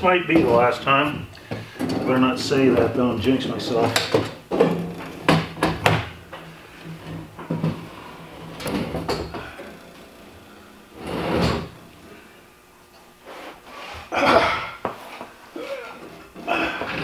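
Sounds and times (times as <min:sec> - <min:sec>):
tank scraping: 0:10.8 - 0:12.0.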